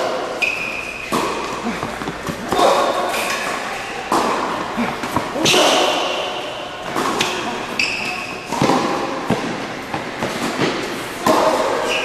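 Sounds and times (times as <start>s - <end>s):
tennis balls struck by rackets: 0.0s - 3.0s, 8.5s - 11.9s
shoe squeaks: 0.4s - 1.1s, 7.6s - 8.5s.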